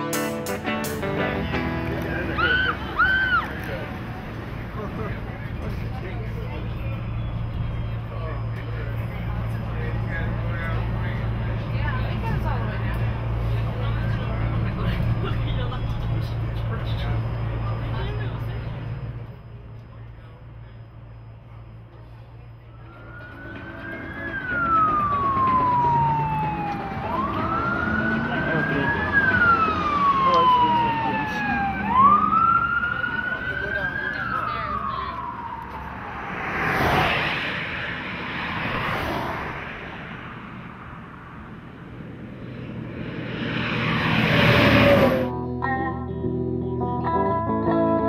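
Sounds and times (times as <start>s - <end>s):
traffic noise: 0.0s - 46.4s
passing vehicles: 0.0s - 48.0s
emergency siren wailing: 1.6s - 19.6s, 22.5s - 45.5s.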